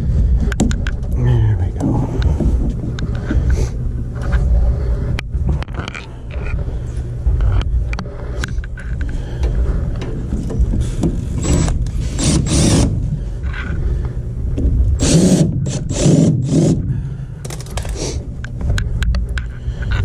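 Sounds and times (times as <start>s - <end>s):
low rumble: 0.0s - 20.0s
cordless driver driving screws: 11.4s - 12.9s, 15.0s - 16.8s.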